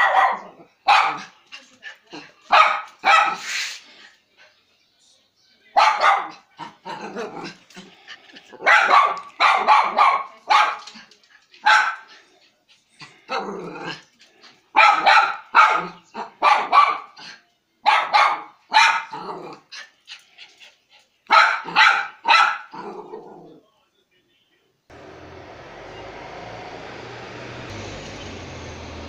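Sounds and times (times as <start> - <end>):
small dog barking: 0.0 - 1.4, 2.5 - 3.6, 5.8 - 7.6, 8.6 - 11.0, 11.6 - 12.1, 14.7 - 19.4, 21.3 - 23.3.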